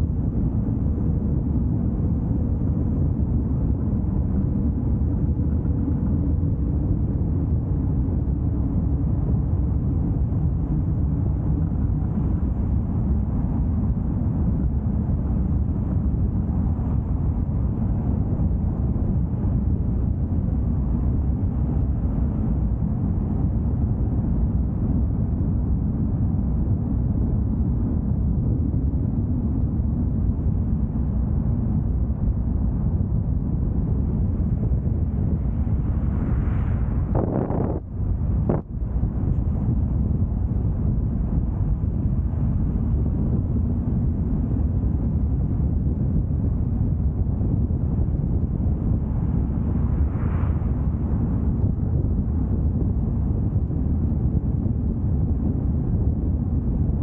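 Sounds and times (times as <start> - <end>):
car engine and road noise: 36.1 - 38.6.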